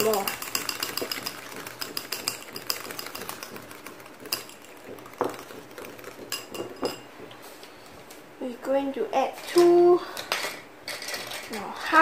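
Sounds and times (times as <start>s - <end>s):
whisk clicking against bowl: 0.0s - 7.0s.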